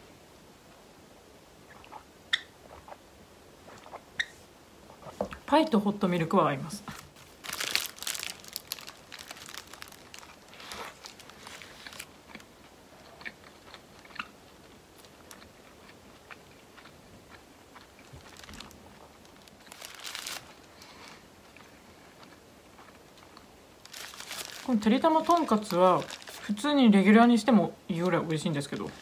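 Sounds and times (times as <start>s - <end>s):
crunching and chewing burger: 6.9s - 26.6s.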